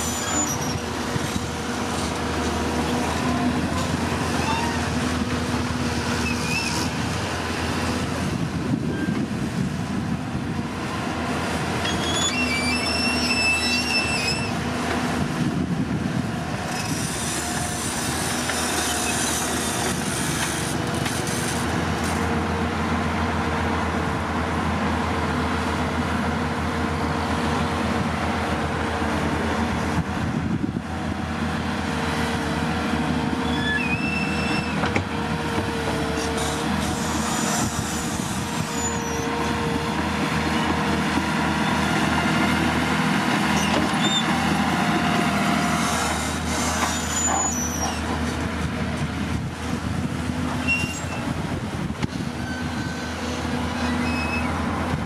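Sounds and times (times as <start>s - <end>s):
steel tracks squealing: 0.0s - 7.6s, 8.8s - 9.4s, 11.6s - 14.8s, 16.6s - 22.2s, 33.2s - 48.5s, 50.4s - 51.4s, 52.0s - 54.9s
bulldozer diesel engine running: 0.0s - 55.0s.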